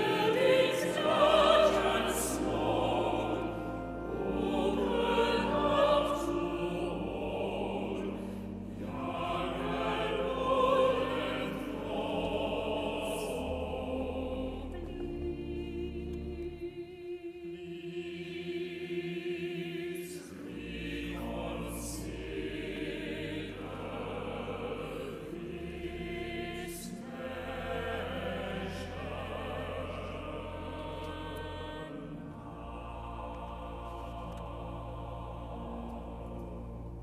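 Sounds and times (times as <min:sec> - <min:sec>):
piano chords: 0:00.0 - 0:17.2
choir singing: 0:00.0 - 0:37.0.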